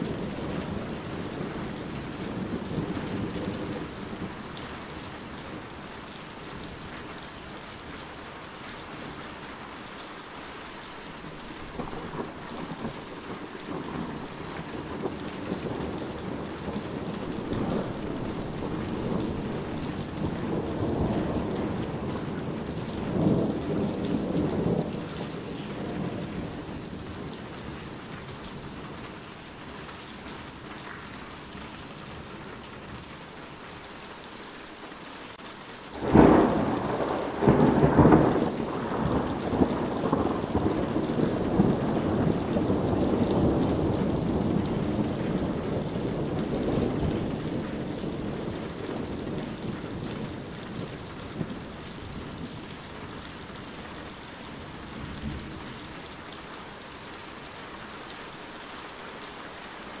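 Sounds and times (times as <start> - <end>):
rolling thunder rumbles: 0.0 - 4.6, 11.6 - 29.1, 36.0 - 56.0
heavy rain falling: 0.0 - 60.0
loud thunderclap: 11.8 - 27.8, 36.0 - 51.6.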